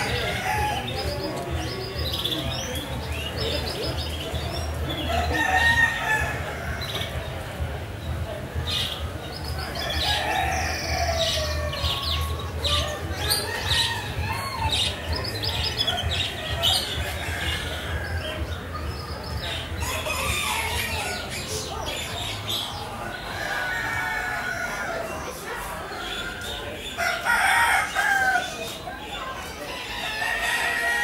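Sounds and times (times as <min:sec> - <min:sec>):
roosters crowing: 0:00.0 - 0:03.6, 0:04.8 - 0:07.2, 0:09.6 - 0:18.6, 0:19.3 - 0:31.0
small birds chirping: 0:00.0 - 0:30.9
hens clucking: 0:00.0 - 0:31.0.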